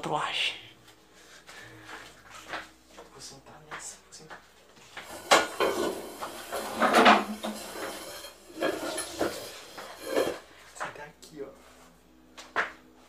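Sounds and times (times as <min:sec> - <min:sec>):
chair legs scraping floor: 0:04.8 - 0:10.5.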